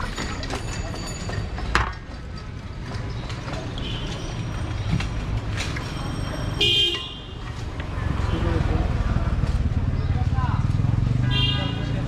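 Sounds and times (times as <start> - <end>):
street traffic rumble: 0.0 - 12.0
vehicle horn honk: 6.6 - 7.4, 11.3 - 11.8.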